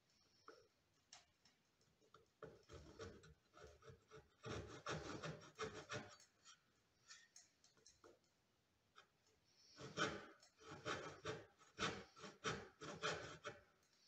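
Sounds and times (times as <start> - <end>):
hand saw cutting wood: 2.7 - 6.6, 9.7 - 13.7.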